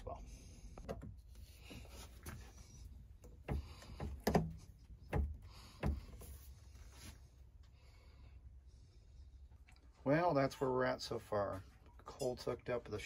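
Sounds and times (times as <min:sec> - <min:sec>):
plastic pipe knocks and clicks: 0:03.2 - 0:06.3.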